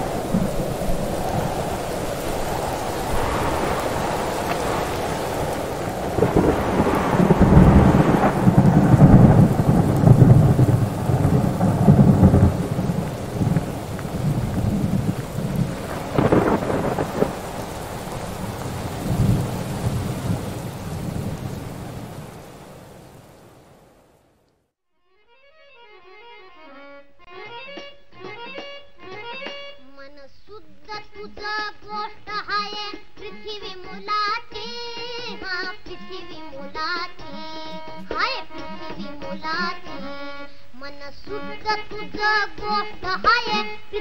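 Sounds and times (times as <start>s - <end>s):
sharp crack of thunder: 0.0s - 23.8s
rolling thunder: 0.0s - 24.1s
steady rain: 0.0s - 24.5s.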